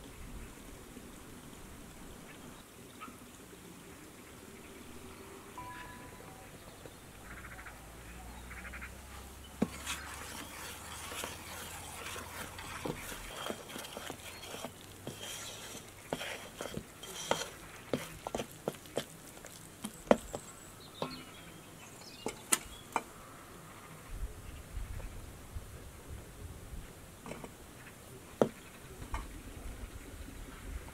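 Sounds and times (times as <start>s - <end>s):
metal spoon scraping a steel bowl: 9.6s - 19.1s.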